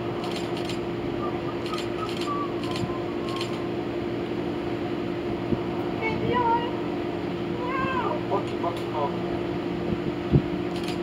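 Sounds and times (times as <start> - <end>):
mechanical drone: 0.0 - 4.8, 9.8 - 11.0
faint whistles and chirps: 1.2 - 3.6.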